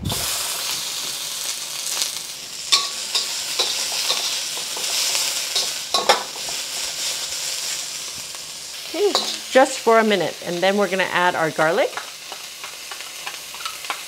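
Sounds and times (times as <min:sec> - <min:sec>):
onions sizzling in hot oil: 0:00.0 - 0:14.0
metal spatula scraping wok: 0:01.9 - 0:07.8, 0:09.0 - 0:09.7, 0:11.9 - 0:14.0.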